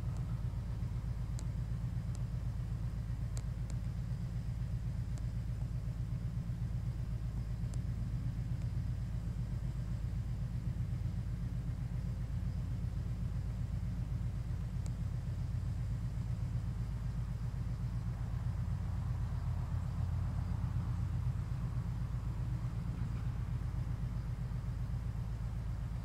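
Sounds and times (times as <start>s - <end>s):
faint high ticks: 0.0s - 5.6s, 7.4s - 9.0s, 14.4s - 15.6s
low outdoor rumble: 0.0s - 26.0s.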